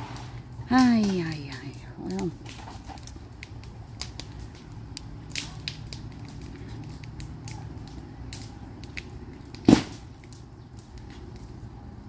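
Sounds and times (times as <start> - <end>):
light knocks and clatter: 2.4 - 3.2
plywood sheet hitting ground: 9.6 - 10.1.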